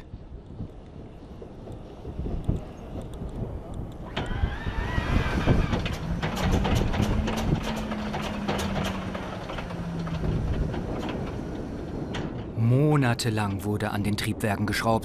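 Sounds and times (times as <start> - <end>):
radial engine cranking with pops: 5.5 - 11.4.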